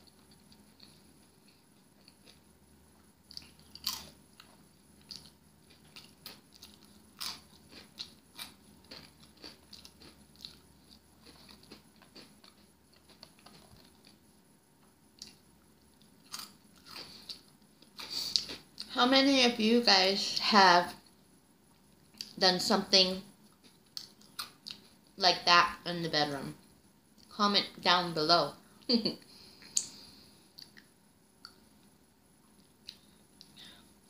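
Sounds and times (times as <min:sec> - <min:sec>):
crunchy snack chewing: 0:00.1 - 0:14.2, 0:16.0 - 0:18.9.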